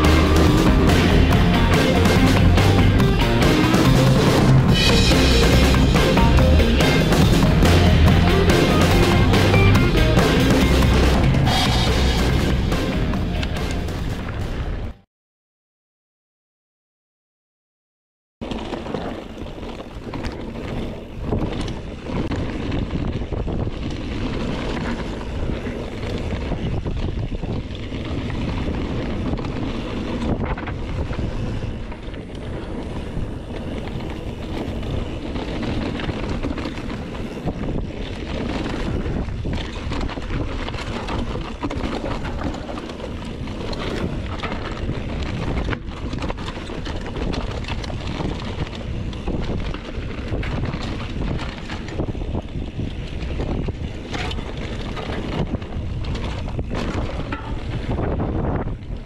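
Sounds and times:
bike knocks and rattles: 0:18.4 - 0:59.0
tyres rolling over dirt and rock: 0:18.4 - 0:59.0
wind on camera microphone: 0:18.8 - 0:59.0.

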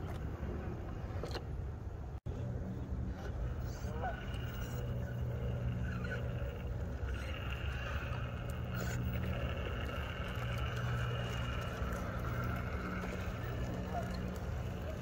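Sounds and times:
electric motor and gears whining: 0:02.3 - 0:15.0.

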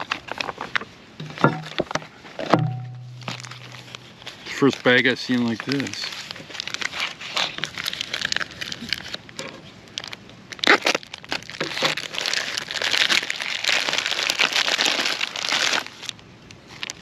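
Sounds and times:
plastic packaging crinkling: 0:00.0 - 0:01.8, 0:02.7 - 0:17.0
packaging tearing: 0:03.2 - 0:16.1.

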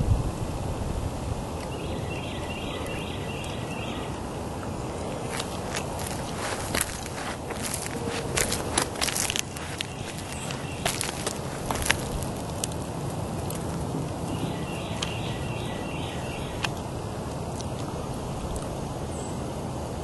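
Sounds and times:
wind-like rush: 0:00.0 - 0:02.1, 0:04.1 - 0:15.8
faint bird chirps: 0:01.7 - 0:04.2, 0:14.3 - 0:16.7.

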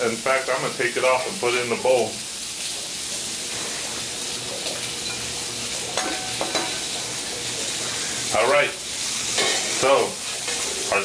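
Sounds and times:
shrimp sizzling on griddle: 0:00.0 - 0:11.0
metal spatula scraping griddle: 0:09.2 - 0:10.9.

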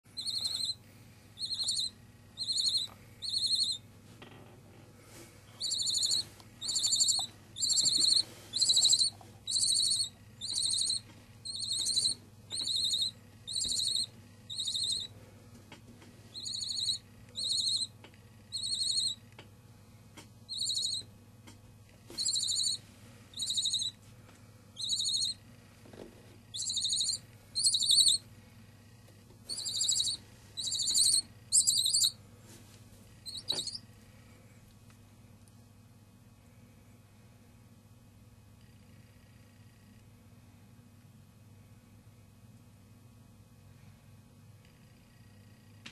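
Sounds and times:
owl chicks begging calls: 0:00.2 - 0:00.8, 0:01.4 - 0:03.8, 0:05.6 - 0:15.1, 0:16.3 - 0:17.9, 0:18.5 - 0:19.2, 0:20.5 - 0:21.1, 0:22.1 - 0:24.0, 0:24.8 - 0:25.4, 0:26.5 - 0:28.2, 0:29.5 - 0:32.2, 0:33.3 - 0:33.8.

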